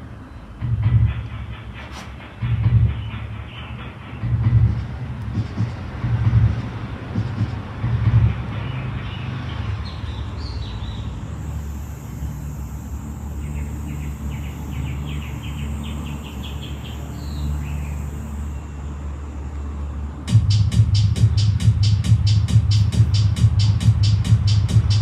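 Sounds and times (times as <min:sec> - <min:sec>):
road traffic rumble: 0:00.0 - 0:25.0
small bird chirping: 0:08.5 - 0:18.7.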